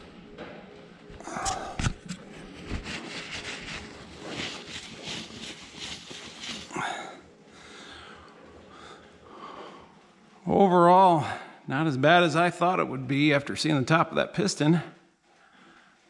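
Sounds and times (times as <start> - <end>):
paper towel scrubbing metal: 2.2 - 7.1.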